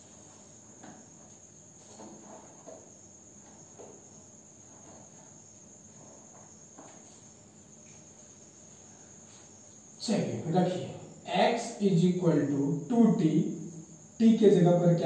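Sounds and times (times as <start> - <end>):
soft knocks and rustles: 0.8 - 7.3.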